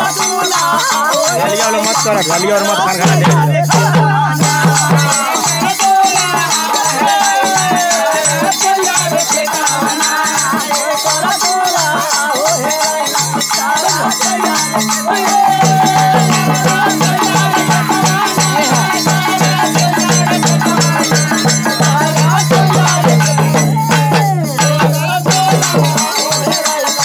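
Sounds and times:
hand drum beating fast rhythm: 0:00.0 - 0:27.0
person singing: 0:00.0 - 0:27.0.

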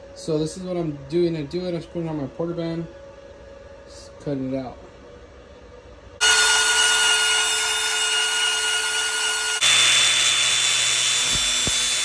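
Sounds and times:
angle grinder whining: 0:06.2 - 0:12.0
band saw cutting metal: 0:06.2 - 0:12.0.

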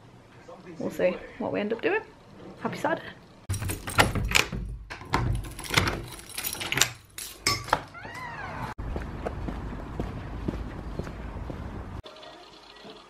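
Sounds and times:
outdoor background noise: 0:00.0 - 0:13.0
keys jangling in a lock: 0:03.5 - 0:08.0
door latch and handle clunking: 0:03.5 - 0:08.1
short rising and falling squeal: 0:08.0 - 0:08.8.

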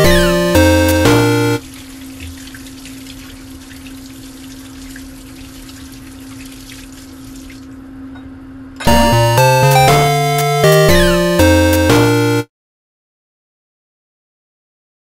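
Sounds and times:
tap water splashing in a sink: 0:01.6 - 0:07.8.

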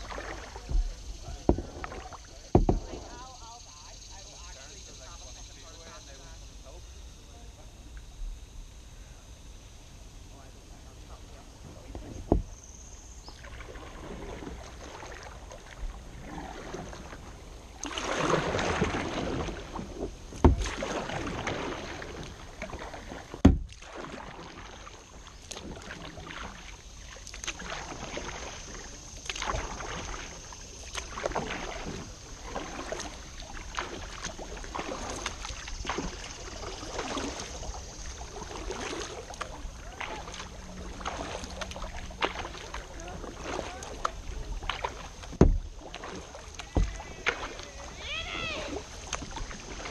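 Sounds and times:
paddle water swishing and splashing: 0:00.0 - 0:49.9
sharp knocks: 0:02.5 - 0:02.9, 0:23.4 - 0:23.8, 0:45.3 - 0:45.6.

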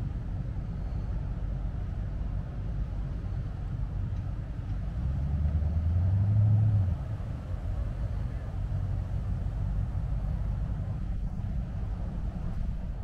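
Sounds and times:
engine hum: 0:00.0 - 0:13.0
steady low rumble: 0:00.0 - 0:13.0.

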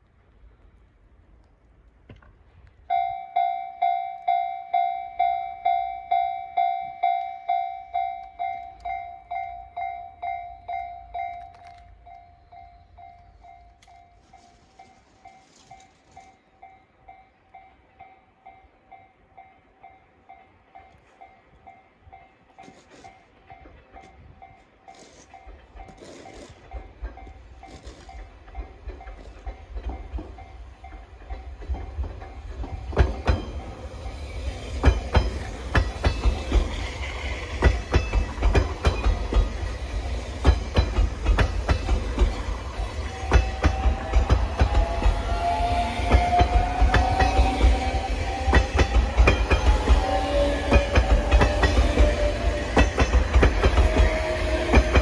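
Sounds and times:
electric train rumbling: 0:00.0 - 0:55.0
level crossing bell dinging: 0:02.9 - 0:14.2.

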